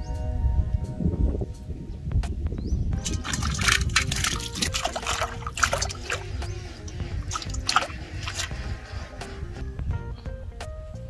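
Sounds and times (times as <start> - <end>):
background music: 0.0 - 11.0
fish splashing in water: 3.0 - 9.3.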